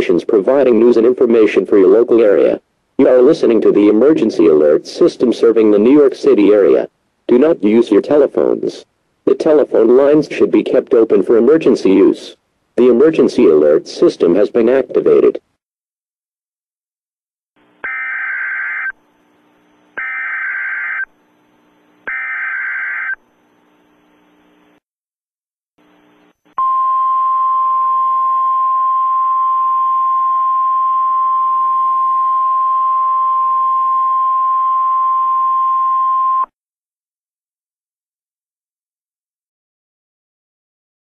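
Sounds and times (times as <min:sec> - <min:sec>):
screeching digital data bursts: 0:17.8 - 0:19.0, 0:20.0 - 0:21.1, 0:22.1 - 0:23.2.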